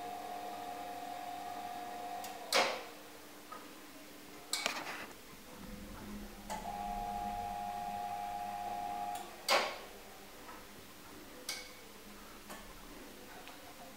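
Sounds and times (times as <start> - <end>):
clock mechanism whining: 5.7 - 10.0.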